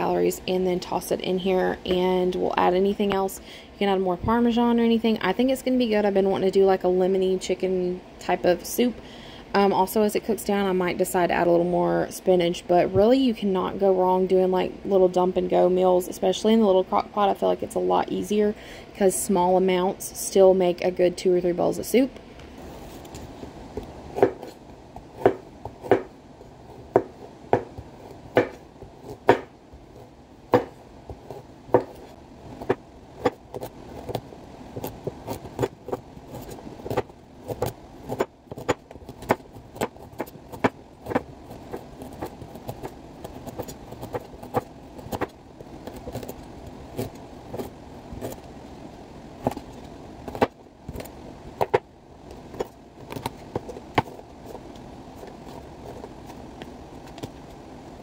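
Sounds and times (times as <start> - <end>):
knife chopping carrot on board: 25.2 - 26.1, 28.4 - 28.6, 29.2 - 29.5.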